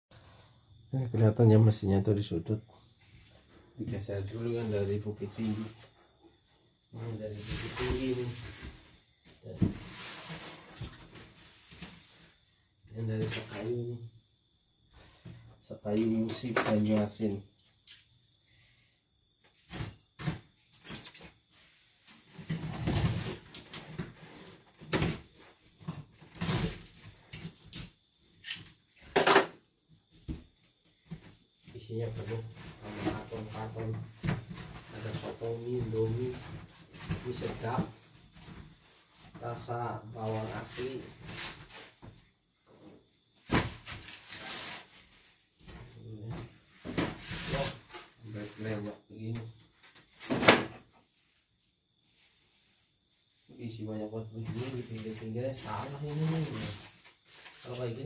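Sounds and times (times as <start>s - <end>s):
cardboard rustling and scraping: 7.3s - 9.0s, 9.6s - 12.4s, 43.4s - 48.8s, 54.5s - 57.7s
objects knocking and scraping: 45.7s - 48.1s.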